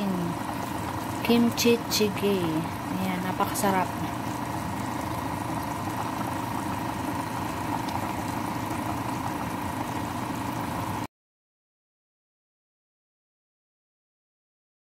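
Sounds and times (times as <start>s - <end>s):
stew bubbling in a pot: 0.0s - 11.1s
thin steady hum: 0.0s - 11.1s.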